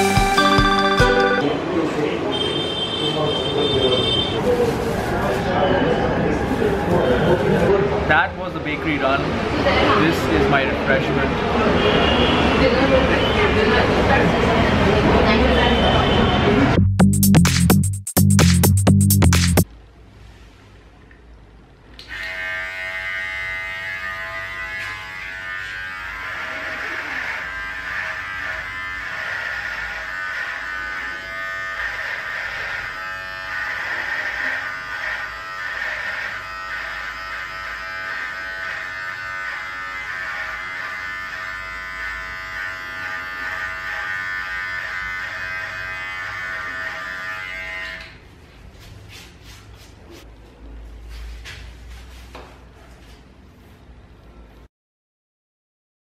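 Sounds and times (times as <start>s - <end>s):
electric beard trimmer buzzing: 22.0s - 48.2s.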